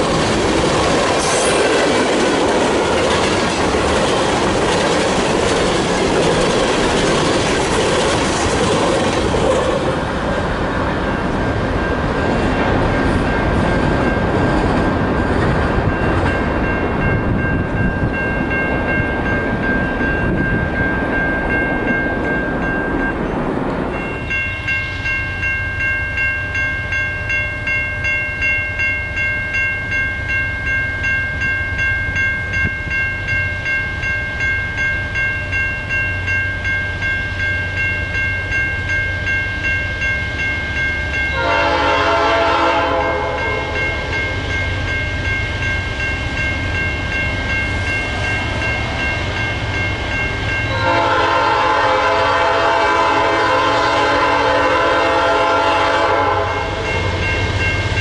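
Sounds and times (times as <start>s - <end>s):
freight train rumble: 0.0s - 58.0s
bell ringing: 23.9s - 42.2s
locomotive air horn: 41.4s - 43.8s, 50.7s - 56.8s.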